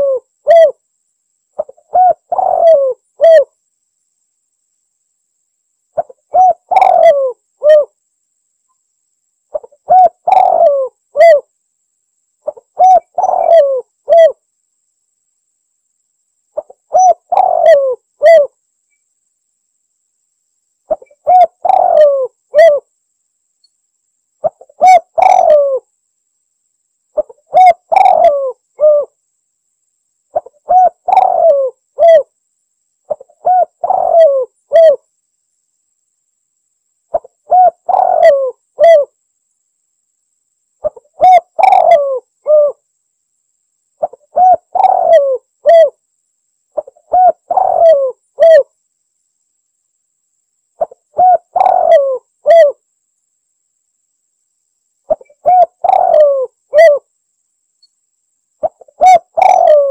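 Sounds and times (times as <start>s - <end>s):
dove cooing: 0.0s - 0.8s, 1.6s - 3.6s, 6.0s - 8.0s, 9.5s - 11.5s, 12.4s - 14.4s, 16.6s - 18.6s, 20.9s - 22.9s, 24.4s - 25.9s, 27.2s - 29.2s, 30.3s - 32.3s, 33.1s - 35.0s, 37.1s - 39.2s, 40.8s - 42.8s, 44.0s - 46.0s, 46.8s - 48.7s, 50.8s - 52.8s, 55.1s - 57.1s, 58.6s - 59.9s.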